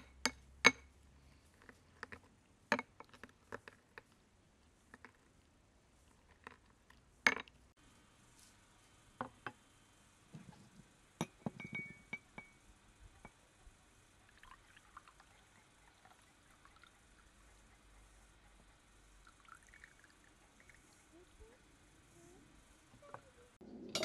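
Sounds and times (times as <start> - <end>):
glassware and dishes clinking: 11.2 - 12.6.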